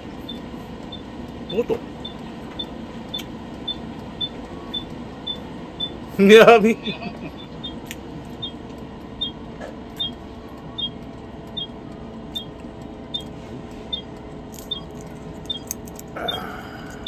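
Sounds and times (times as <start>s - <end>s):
steady low hum: 0.0s - 17.0s
soft ticks with high double note: 7.2s - 15.6s.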